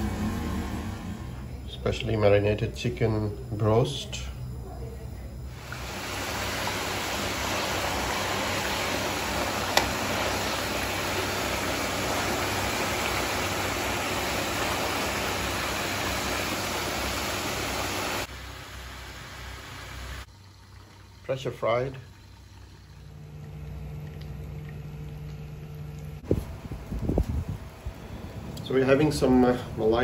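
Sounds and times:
chicken deep-frying in oil: 5.5s - 26.3s.

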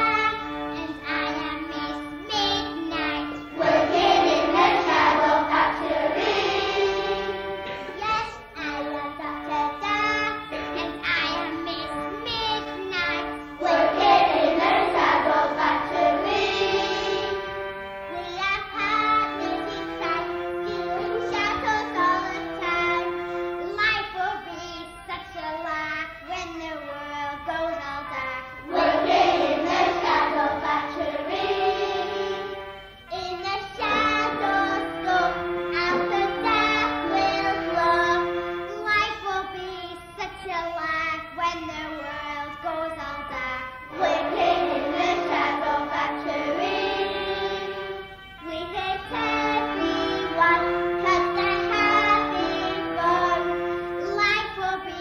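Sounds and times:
children singing with music: 0.0s - 55.0s.

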